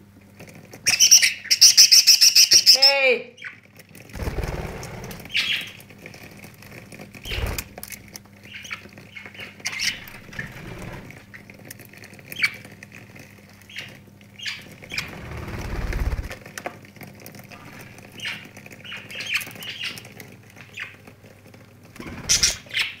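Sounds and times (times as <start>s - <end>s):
bird wingbeats: 4.1s - 5.4s, 7.2s - 7.8s, 14.9s - 16.4s.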